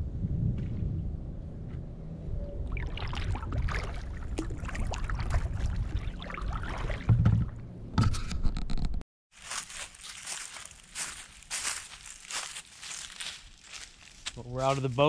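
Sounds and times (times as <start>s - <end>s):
steady low rumble: 0.0s - 8.2s
paddle splashing water: 2.8s - 7.6s.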